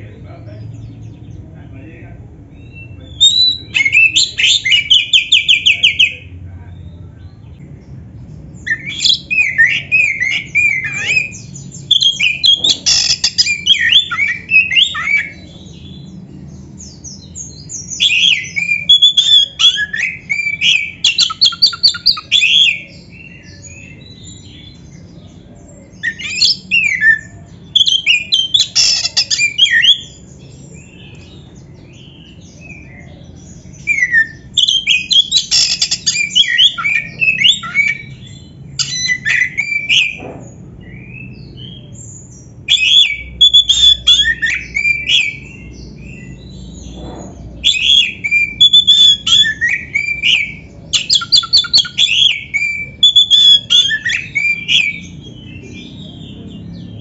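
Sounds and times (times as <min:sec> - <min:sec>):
bird singing whistles and trills: 0:02.5 - 0:06.3, 0:08.6 - 0:40.2, 0:40.8 - 0:57.0.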